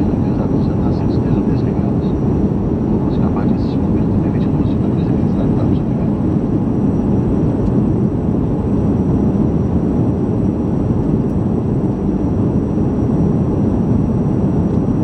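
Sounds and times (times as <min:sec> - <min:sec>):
jet engine cabin rush: 0:00.0 - 0:15.0.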